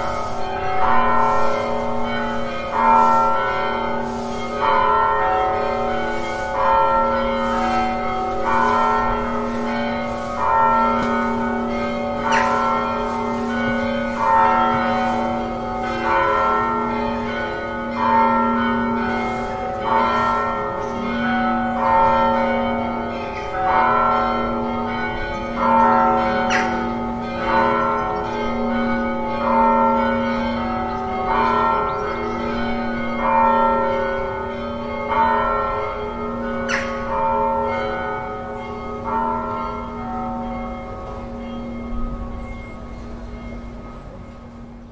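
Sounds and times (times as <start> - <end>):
church bells tolling: 0.0 - 44.9.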